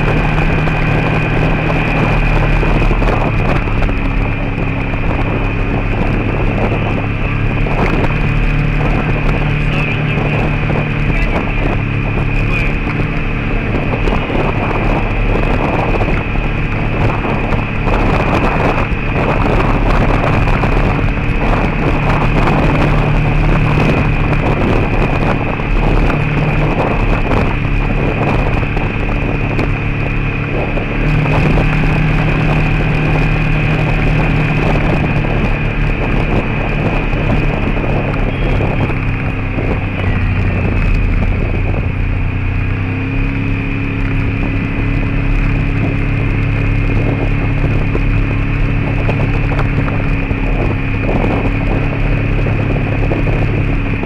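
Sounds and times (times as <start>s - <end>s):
tyres on gravel road: 0.0s - 54.0s
vehicle engine running: 0.0s - 54.0s
wind buffeting microphone: 0.0s - 54.0s.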